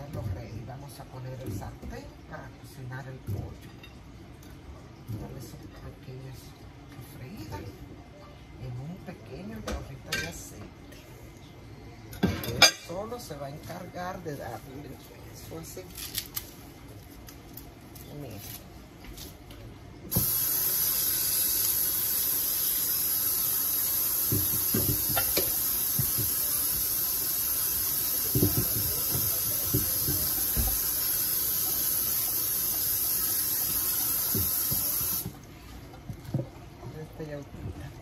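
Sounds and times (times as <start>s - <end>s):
loud steady hiss: 20.1s - 35.4s.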